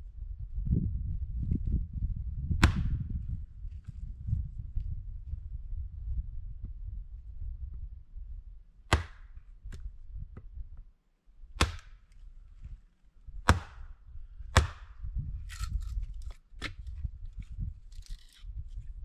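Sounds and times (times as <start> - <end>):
low rumble: 0.0 - 8.7.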